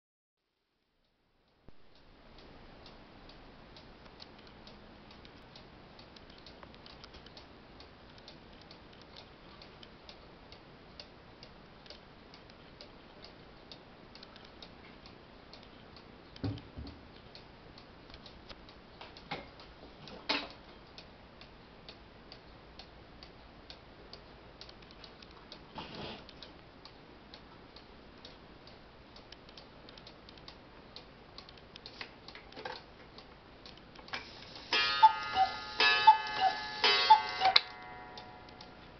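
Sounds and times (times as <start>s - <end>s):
cuckoo clock ticking: 26.4s - 38.9s.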